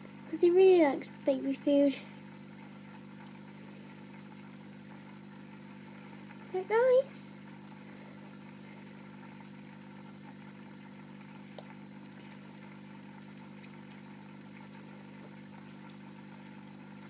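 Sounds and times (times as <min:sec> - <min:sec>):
faint ticks: 0:04.2 - 0:05.1, 0:11.3 - 0:14.3, 0:15.1 - 0:17.0.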